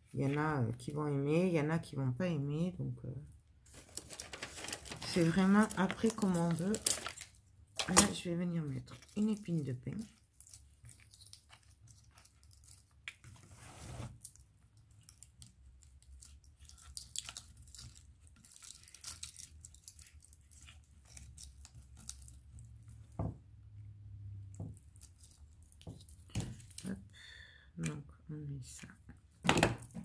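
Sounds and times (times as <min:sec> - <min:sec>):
dry bark crackling and rustling: 0:03.7 - 0:13.4, 0:15.0 - 0:23.0, 0:24.6 - 0:27.0.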